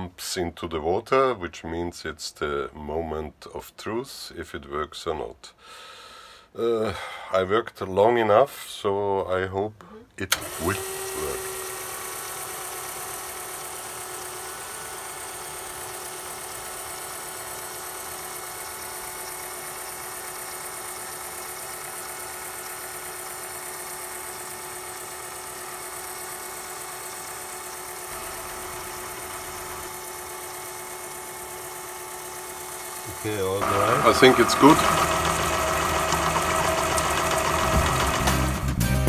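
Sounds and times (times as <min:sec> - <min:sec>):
pump motor running with hiss: 0:10.3 - 0:38.7.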